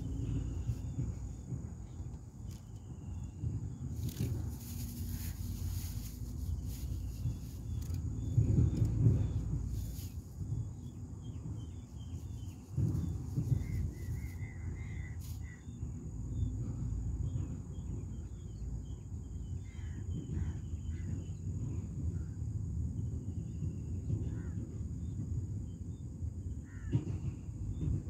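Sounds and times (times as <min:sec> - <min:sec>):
low rumble: 0:00.0 - 0:17.7
high insect drone: 0:00.0 - 0:23.3.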